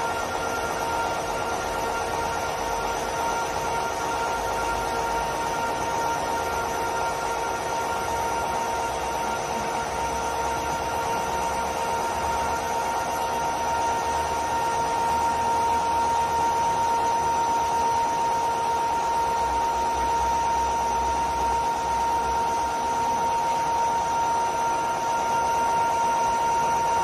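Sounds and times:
lathe whining: 0:00.0 - 0:27.0.

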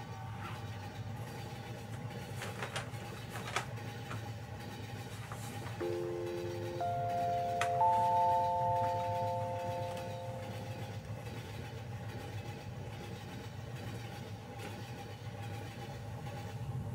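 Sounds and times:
low rumble of a moving train: 0:00.0 - 0:16.9
rising electronic chime: 0:05.8 - 0:11.0.

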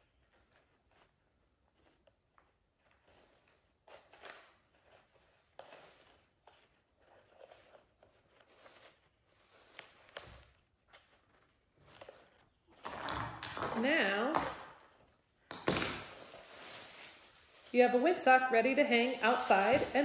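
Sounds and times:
paper rustling: 0:00.0 - 0:12.9, 0:15.9 - 0:20.0.

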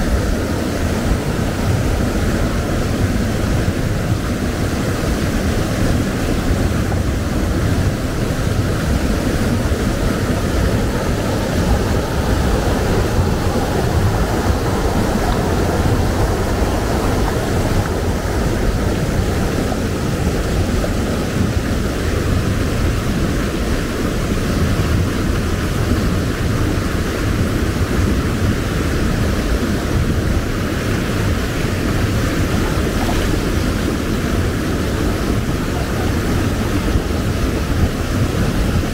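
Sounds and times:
river rushing over boulders: 0:00.0 - 0:38.9.

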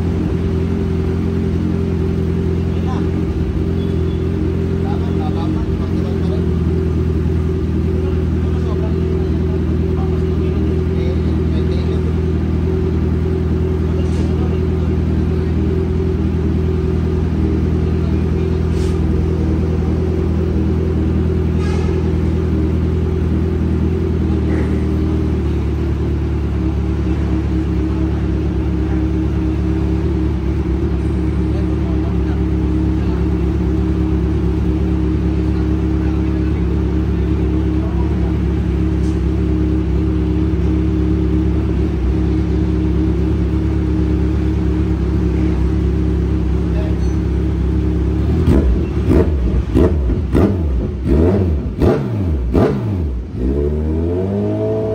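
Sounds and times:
motorcycle engine idling: 0:00.0 - 0:54.9.

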